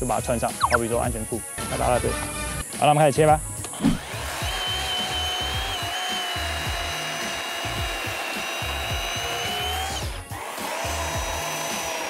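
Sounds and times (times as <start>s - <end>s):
background music with beat: 0.0s - 1.7s, 2.6s - 12.0s
electric chainsaw cutting log: 3.7s - 12.0s.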